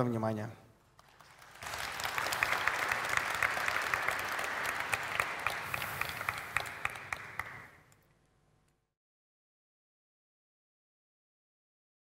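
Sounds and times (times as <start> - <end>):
audience applauding: 1.0 - 7.9.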